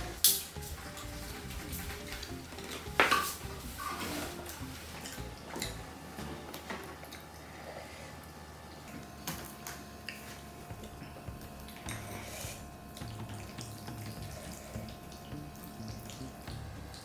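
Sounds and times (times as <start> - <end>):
wet sticky noodle mixing: 8.7 - 17.0.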